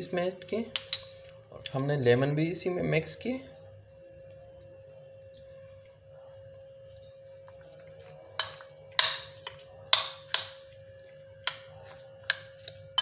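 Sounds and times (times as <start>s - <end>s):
faint steady hum: 0.0s - 13.0s
spoon stirring chicken in bowl: 7.4s - 13.0s.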